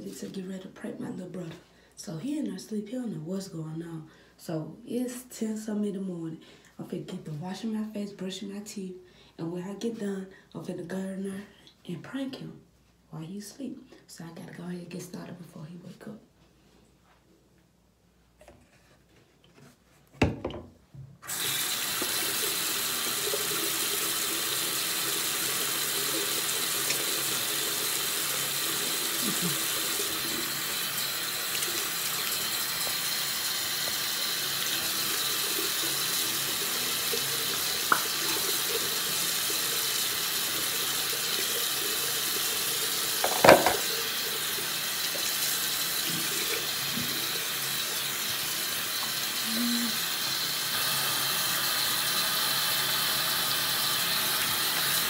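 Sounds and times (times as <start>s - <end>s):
tap water running into basin: 20.2s - 55.0s
knock: 43.2s - 43.8s.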